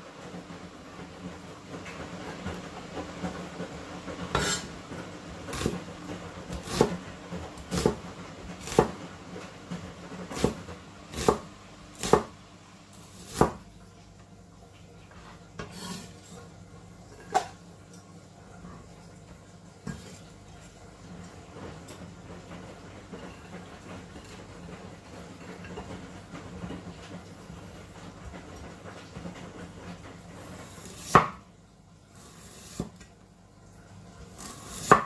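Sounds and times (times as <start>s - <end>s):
knife chopping on a board: 6.5s - 7.0s, 7.6s - 8.0s, 8.6s - 9.0s, 10.3s - 12.3s, 13.1s - 13.6s, 30.8s - 31.4s, 34.4s - 35.0s.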